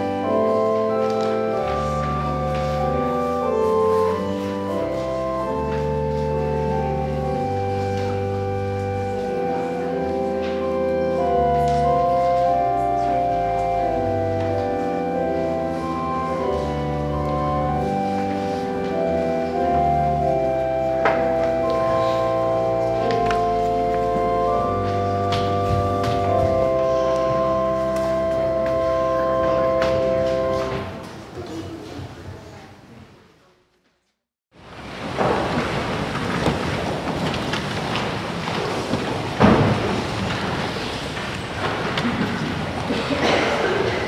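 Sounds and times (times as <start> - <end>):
church organ chords: 0.0 - 31.2.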